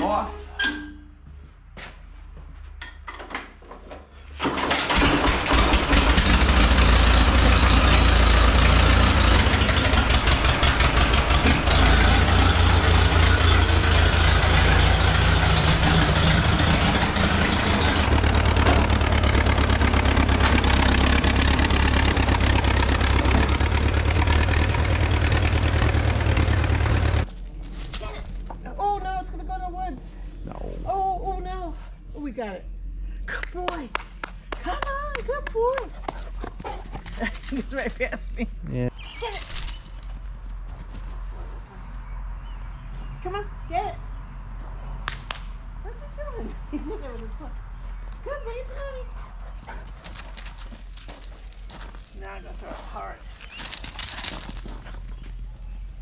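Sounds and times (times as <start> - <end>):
tractor engine running: 4.4 - 27.3.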